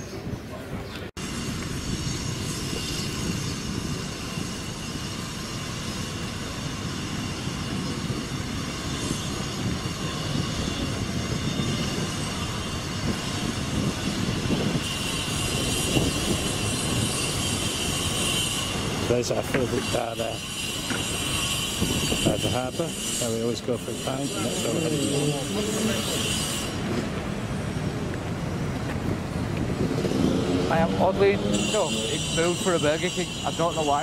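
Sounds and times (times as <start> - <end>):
wind buffeting microphone: 0.0 - 33.4
thin high whine: 1.2 - 28.2, 29.9 - 34.0.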